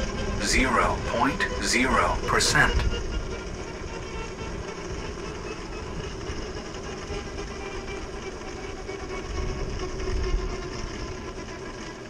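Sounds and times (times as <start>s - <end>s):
electric motor whine: 2.9s - 11.6s
wind rumble on microphone: 9.0s - 11.2s.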